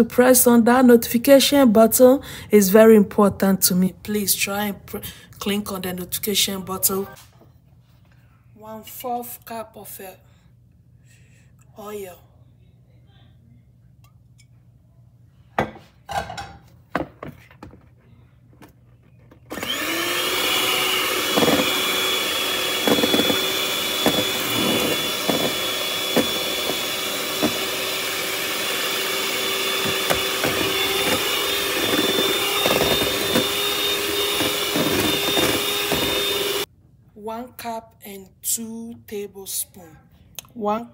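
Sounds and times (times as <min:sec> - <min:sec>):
electric hand mixer whining: 0:19.5 - 0:36.7.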